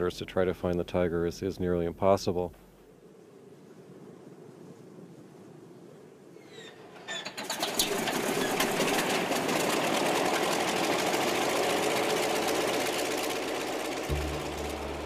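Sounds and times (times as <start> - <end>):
radial aircraft engine running: 7.7 - 15.0.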